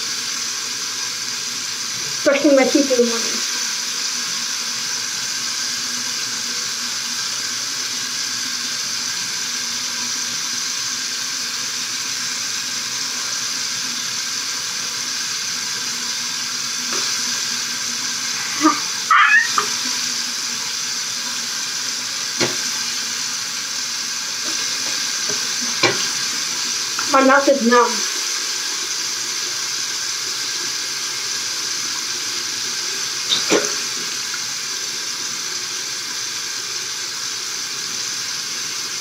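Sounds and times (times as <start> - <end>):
tap water running into sink: 0.0 - 39.0.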